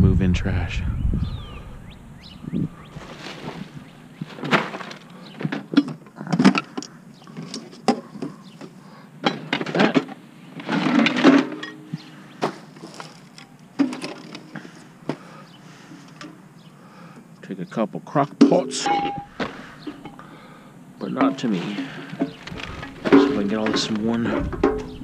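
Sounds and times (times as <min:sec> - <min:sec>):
plastic bags and cardboard rustling: 0:02.8 - 0:08.8, 0:09.4 - 0:15.3, 0:19.0 - 0:20.2, 0:21.3 - 0:25.0
appliance parts knocking and clunking: 0:03.3 - 0:15.2, 0:18.3 - 0:20.4, 0:21.0 - 0:25.0.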